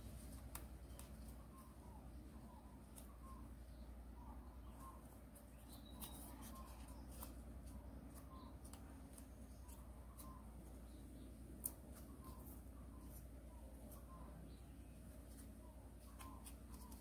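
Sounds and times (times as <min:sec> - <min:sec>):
paper being folded: 0:05.4 - 0:10.9.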